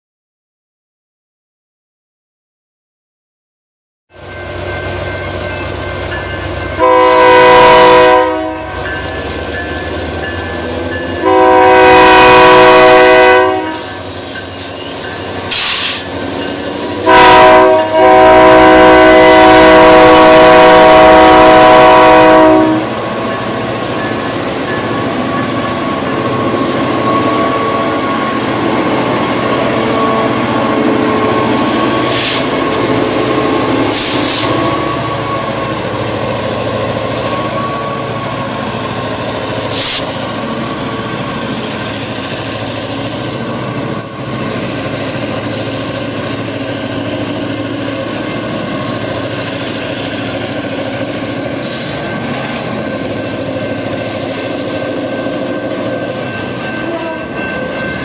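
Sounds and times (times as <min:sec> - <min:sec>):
train running through crossing: 0:04.1 - 0:58.0
locomotive air horn blasts: 0:06.8 - 0:08.8, 0:11.2 - 0:14.1, 0:17.0 - 0:23.0.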